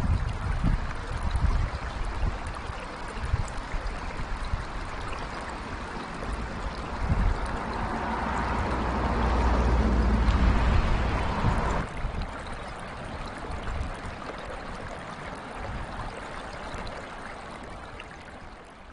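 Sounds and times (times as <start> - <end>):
river rushing over rocks: 4.6 - 13.4
low rumble: 6.2 - 12.0.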